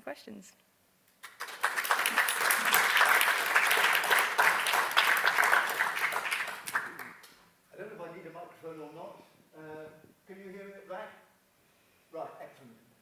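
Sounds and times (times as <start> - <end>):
audience applauding: 1.2 - 7.3.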